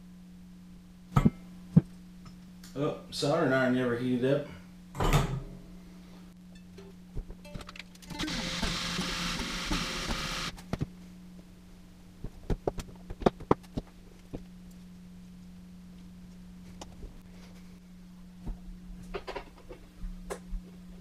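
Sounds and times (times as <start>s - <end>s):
low electrical hum: 0.0s - 21.0s
small electric motor buzzing: 8.0s - 10.6s.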